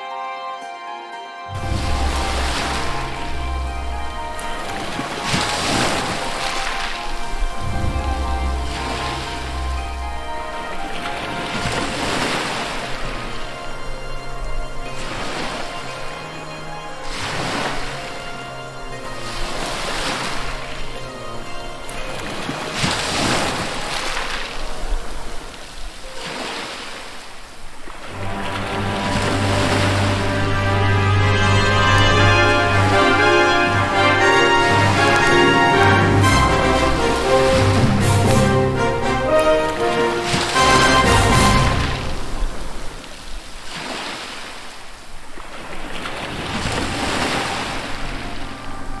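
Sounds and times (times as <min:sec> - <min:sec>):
wind on microphone: 0:01.5 - 0:13.4
sea water splashing against boat: 0:01.5 - 0:13.6, 0:21.9 - 0:49.0.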